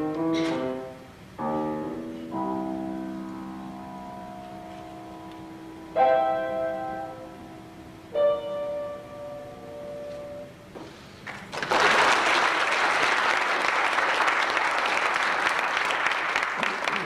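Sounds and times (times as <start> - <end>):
piano chord ringing: 0.0 - 10.7
audience applause: 11.2 - 17.0.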